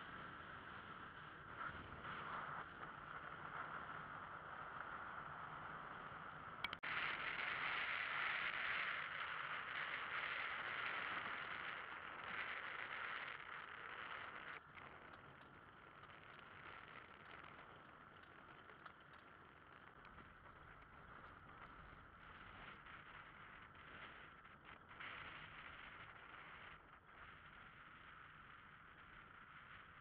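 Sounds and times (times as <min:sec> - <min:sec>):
road and wind noise: 0:00.0 - 0:30.0
click: 0:06.6 - 0:06.8.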